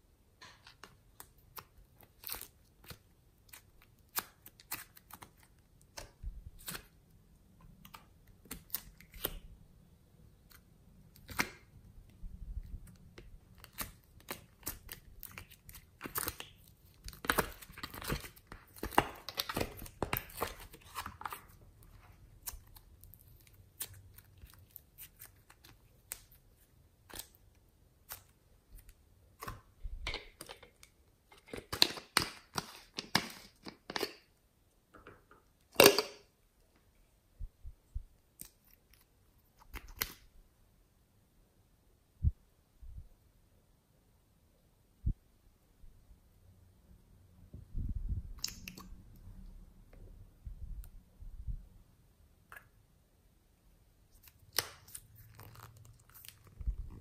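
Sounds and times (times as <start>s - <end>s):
plastic mould crackling: 10.4s - 34.3s.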